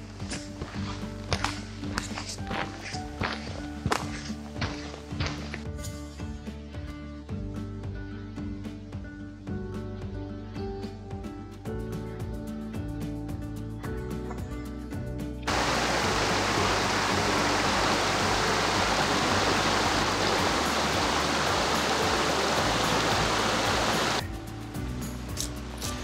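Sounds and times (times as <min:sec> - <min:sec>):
background music: 0:00.0 - 0:26.0
brook rushing over rocks: 0:15.5 - 0:24.2.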